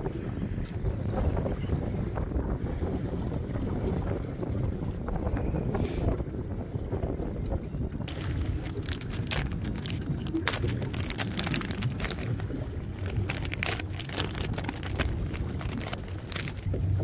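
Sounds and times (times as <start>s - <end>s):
wind rumble on microphone: 0.0s - 17.0s
plastic package crinkling: 8.1s - 16.7s.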